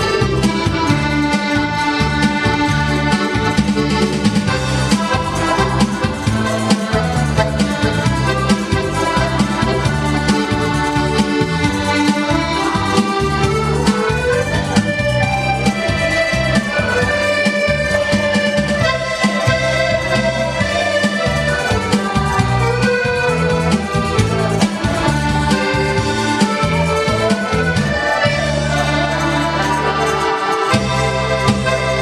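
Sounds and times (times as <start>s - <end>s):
piano accordion playing: 0.0s - 32.0s.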